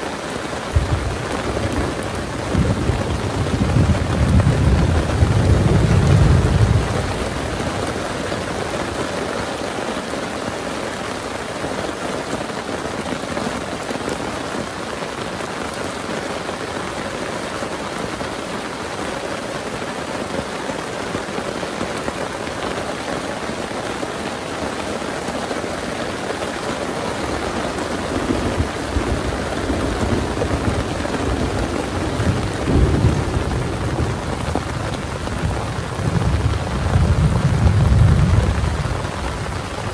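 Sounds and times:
heavy rain: 0.0 - 39.9
rolling thunder: 0.7 - 8.0, 28.1 - 39.9.

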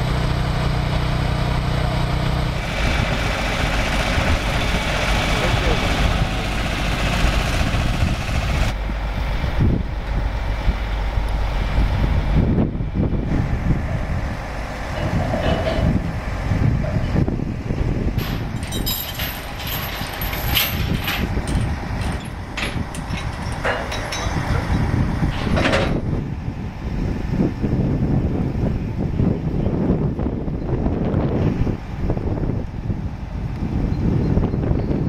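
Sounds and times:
heavy vehicles rumbling: 0.0 - 35.0
chain clanking on steel deck: 14.9 - 16.0, 18.2 - 26.0.

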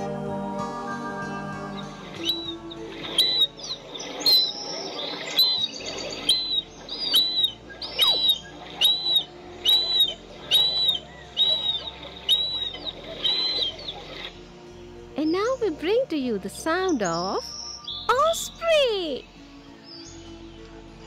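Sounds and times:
harrier whistled calls: 1.7 - 14.4.

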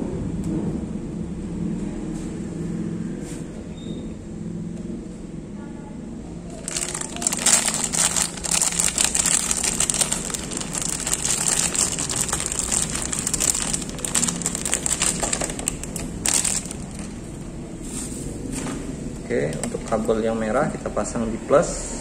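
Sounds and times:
plastic bag crinkling: 6.5 - 17.4.

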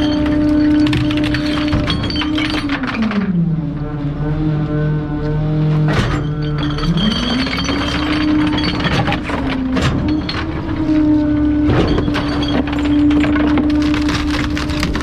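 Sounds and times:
items cracking as crushed: 0.0 - 3.2, 11.7 - 15.0
garbage truck engine revving: 0.0 - 15.0.

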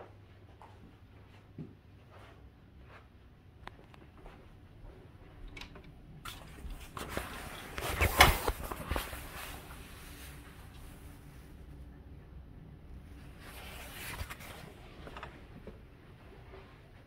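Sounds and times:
curtain runners sliding and clicking: 5.5 - 11.3, 13.2 - 15.7
curtain fabric rustling: 6.3 - 11.8, 13.0 - 15.7.

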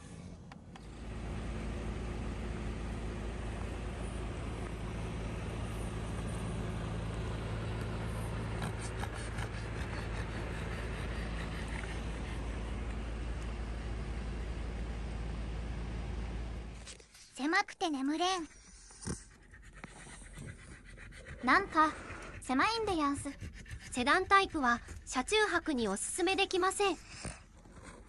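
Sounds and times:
idling vehicle engines hum: 0.0 - 17.1.

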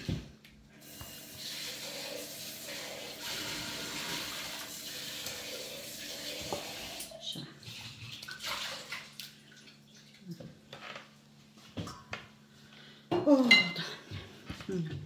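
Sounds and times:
water running: 0.7 - 10.7.

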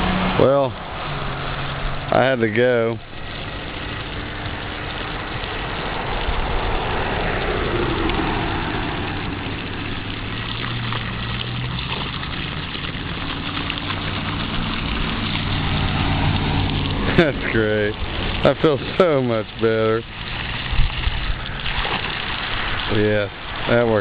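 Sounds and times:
urine splashing into puddle: 0.0 - 24.0.

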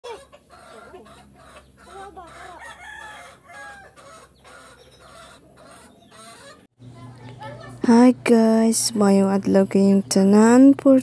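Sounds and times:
chickens clucking: 0.0 - 7.9
rooster crowing: 0.6 - 6.6.

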